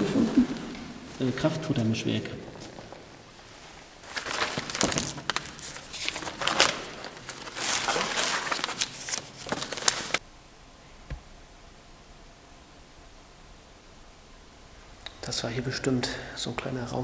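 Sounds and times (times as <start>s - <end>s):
paper pages rustling: 0.0s - 10.2s.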